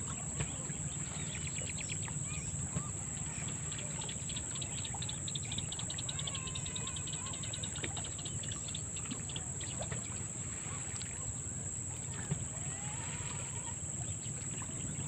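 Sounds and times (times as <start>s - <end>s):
insect high-pitched whine: 0.0s - 15.0s
faint bird chirps: 0.1s - 15.0s
insect pulsing trills: 1.0s - 10.2s.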